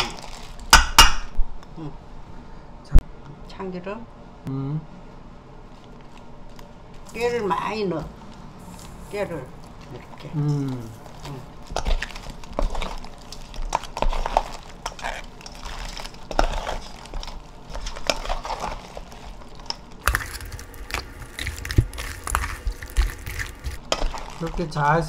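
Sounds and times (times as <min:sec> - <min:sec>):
wet squishing and shell crackling: 0:00.0 - 0:01.0, 0:08.0 - 0:25.0.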